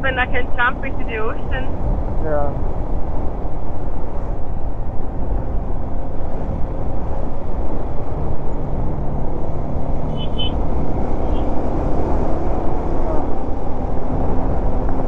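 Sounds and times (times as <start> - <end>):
wind rushing over microphone: 0.0 - 15.0
brief high chirps: 10.1 - 10.6.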